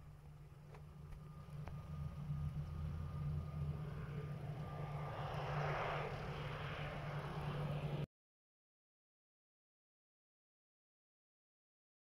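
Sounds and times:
jet airliner engine: 0.0s - 8.1s.

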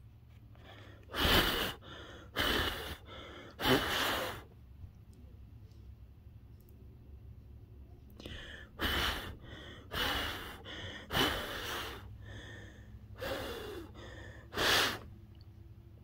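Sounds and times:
in-breaths: 0.4s - 4.5s, 8.2s - 15.1s
person blowing hard: 1.0s - 4.5s, 8.3s - 12.4s, 13.2s - 15.1s.

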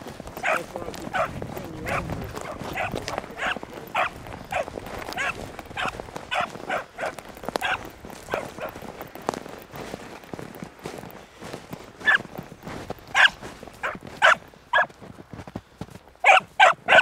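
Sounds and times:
puppy baying barks: 0.4s - 8.8s, 13.1s - 14.9s, 16.2s - 17.0s.

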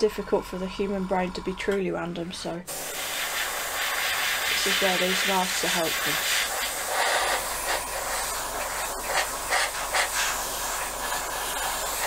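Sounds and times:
airbrush spraying hiss: 2.7s - 12.0s.

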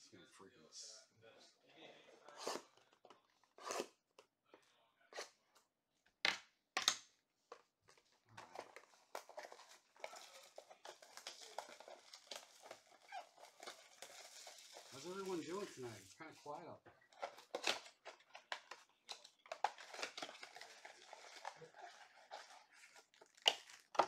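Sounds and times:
plastic shrink-wrap crinkling: 8.3s - 24.0s.

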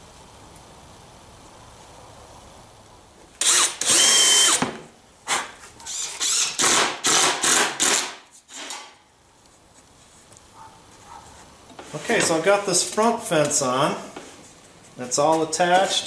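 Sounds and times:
cordless drill driving screws: 3.4s - 4.7s, 5.9s - 8.9s.

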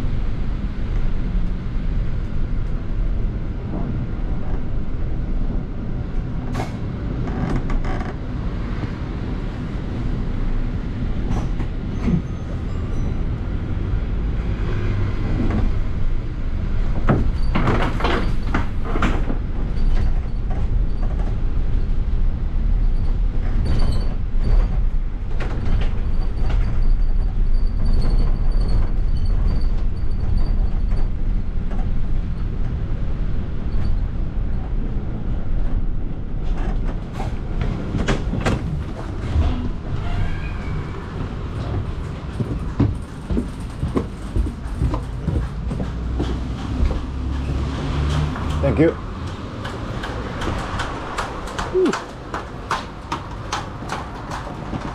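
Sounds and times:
bus engine and road rumble: 0.0s - 54.9s
bodywork knocks and rattles: 16.6s - 21.8s, 41.3s - 54.9s.

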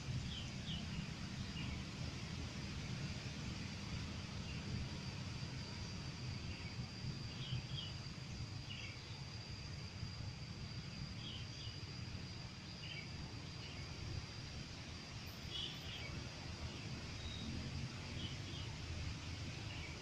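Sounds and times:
insect drone: 0.0s - 20.0s
low steady rumble: 0.0s - 20.0s.

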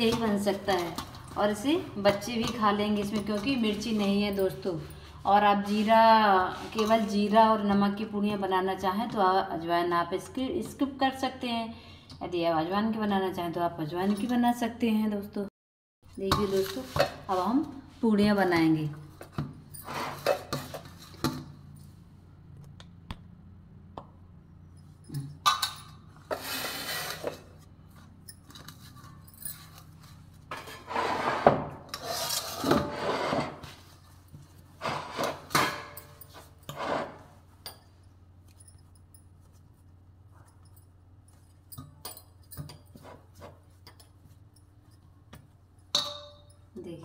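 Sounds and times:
light clinks: 37.6s - 39.6s.

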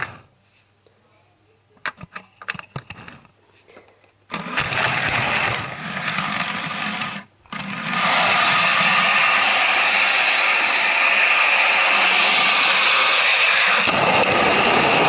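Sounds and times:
toy train motor whirring: 0.0s - 0.3s, 4.3s - 15.0s.

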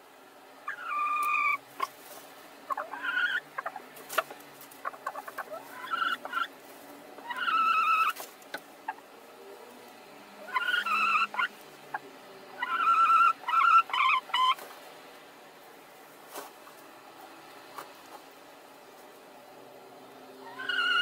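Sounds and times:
hens squawking: 0.6s - 2.0s, 2.6s - 6.6s, 7.2s - 9.1s, 10.4s - 14.7s, 20.4s - 21.0s
straw rustling: 1.1s - 10.2s, 14.4s - 19.4s.

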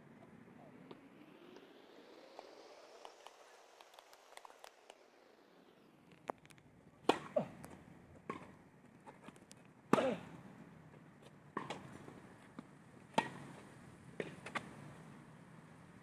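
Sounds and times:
tennis ball bouncing on court: 7.0s - 10.2s, 11.2s - 14.8s
tennis ball hit by rackets: 7.0s - 10.3s, 11.5s - 14.8s.

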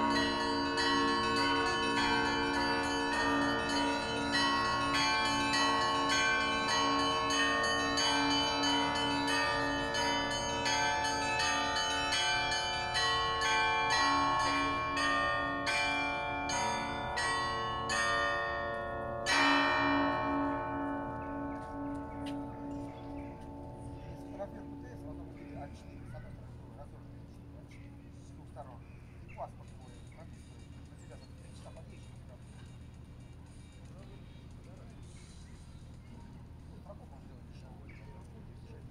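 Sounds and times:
middle bell strokes: 0.0s - 26.0s
heavy bell stroke: 0.0s - 29.0s
small church bells ringing: 0.0s - 38.9s.

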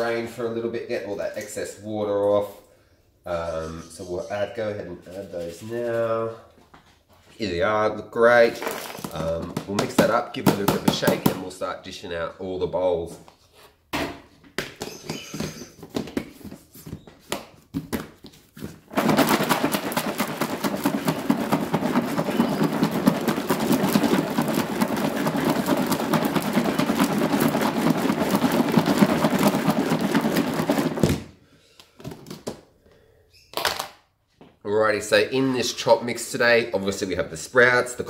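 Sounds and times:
food rattling in plastic tub: 8.4s - 11.6s, 18.6s - 31.3s.

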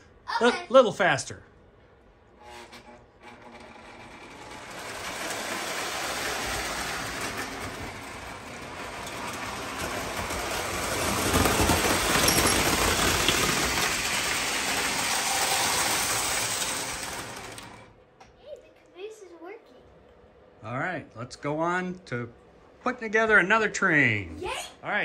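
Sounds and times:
model train wheels rattling on track: 2.8s - 18.0s.

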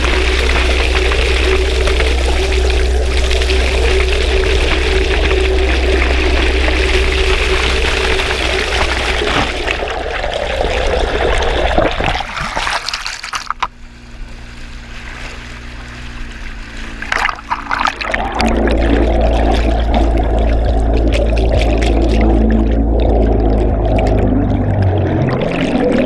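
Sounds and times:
churning water underwater: 0.0s - 26.0s
outboard engine hum: 0.0s - 26.0s
sharp splashing clicks: 16.8s - 26.0s.

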